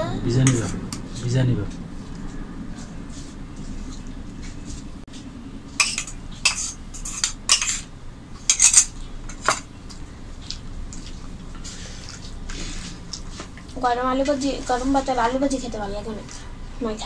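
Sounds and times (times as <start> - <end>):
spoon scraping ceramic bowl: 5.8 - 7.9.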